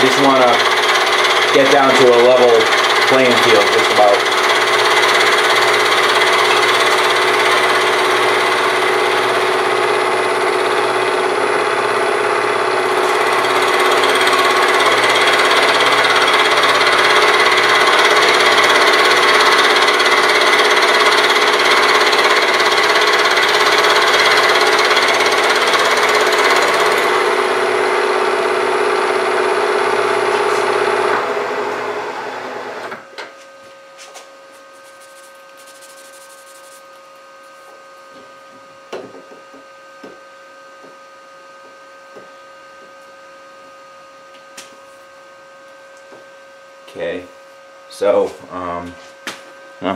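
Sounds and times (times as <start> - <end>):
milling machine grinding: 0.0 - 33.0
spindle running: 0.0 - 33.0.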